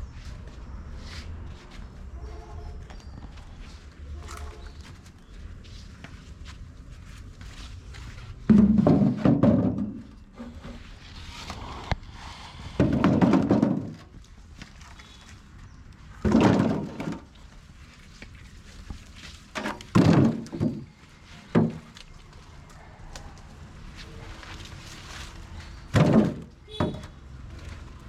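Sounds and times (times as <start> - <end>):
coconuts thudding into metal wheelbarrow: 8.5 - 10.6, 12.8 - 14.2, 16.2 - 17.3, 19.5 - 21.0, 25.9 - 27.3.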